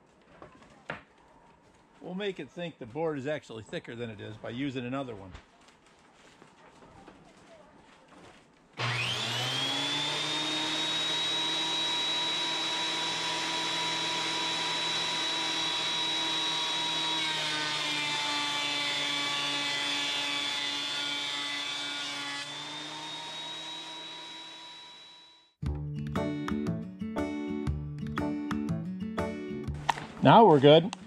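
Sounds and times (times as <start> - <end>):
thickness planer whining: 8.8 - 25.5.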